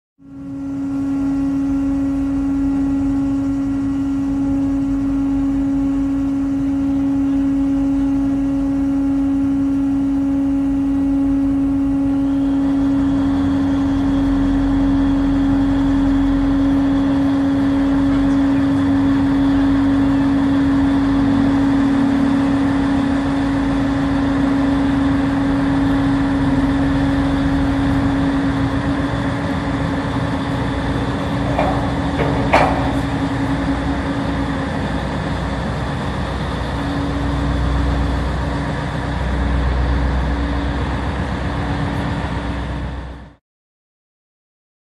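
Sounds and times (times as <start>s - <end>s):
ship engines droning: 0.2s - 43.4s
heavy low rumble: 11.6s - 42.8s.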